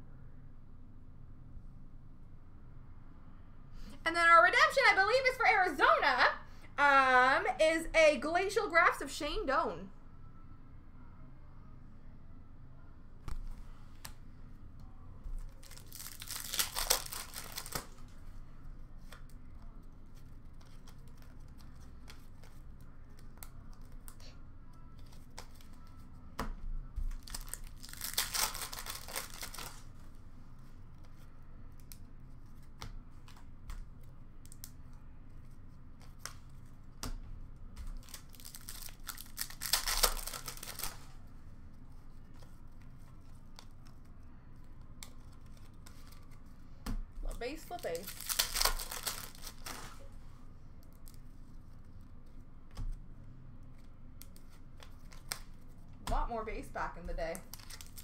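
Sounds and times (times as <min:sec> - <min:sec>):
card packs being torn open: 0:15.5 - 0:18.2, 0:27.1 - 0:29.9, 0:37.9 - 0:41.1, 0:47.4 - 0:50.1, 0:57.4 - 0:58.0.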